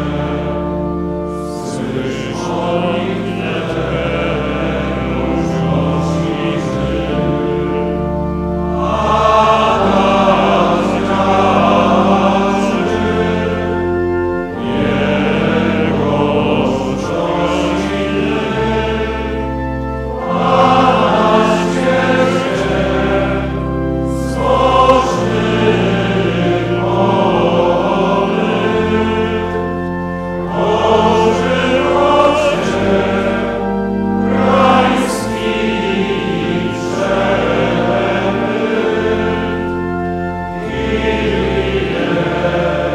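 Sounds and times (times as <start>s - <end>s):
choir and congregation singing hymn: 0.0s - 42.9s
low organ notes: 0.0s - 42.9s.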